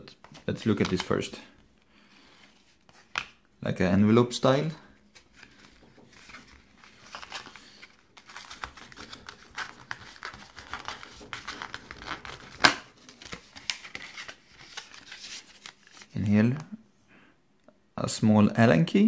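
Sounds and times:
packaging rustling and crinkling: 0:05.1 - 0:16.1.

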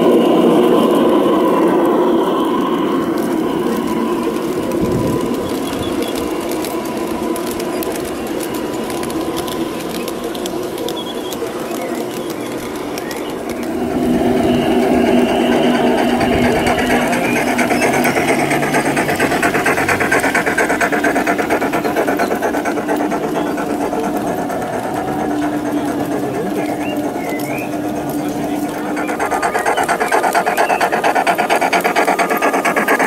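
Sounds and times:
model train motor hum: 0:00.0 - 0:33.0
wheels rattling over rails: 0:00.0 - 0:33.0.

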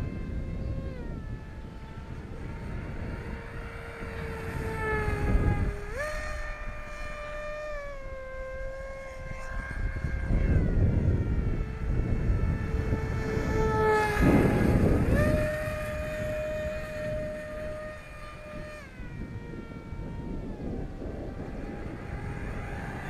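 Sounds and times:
model aircraft motor whine: 0:00.0 - 0:23.0.

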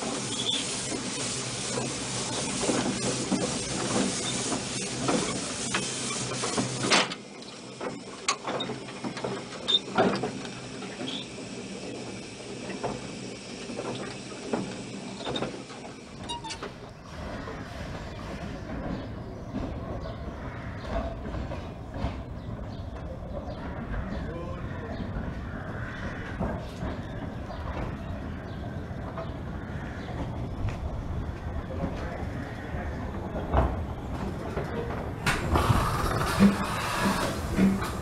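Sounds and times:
steam hissing: 0:00.0 - 0:18.8, 0:35.2 - 0:38.0
locomotive clanks: 0:00.0 - 0:38.0
steam locomotive running: 0:00.0 - 0:38.0.

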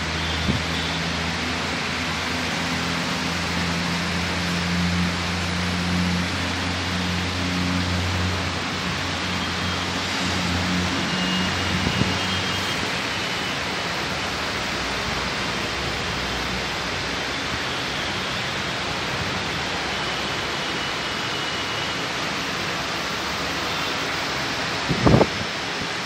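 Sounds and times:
steady rushing hiss: 0:11.7 - 0:26.0.

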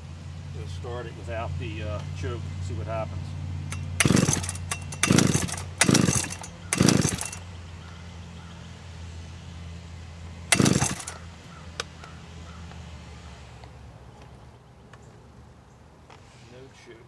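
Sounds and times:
engine turning over: 0:03.6 - 0:07.5, 0:10.5 - 0:11.3
chainsaw starter cord pulls: 0:03.7 - 0:07.4, 0:10.5 - 0:11.2.

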